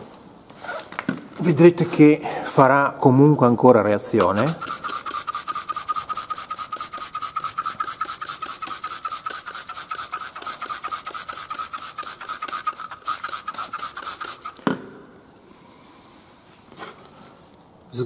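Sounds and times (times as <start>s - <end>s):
bristles squeaking on rubber: 0.6s - 1.0s, 4.2s - 14.7s
brush scrubbing rubber tyre: 4.2s - 14.7s.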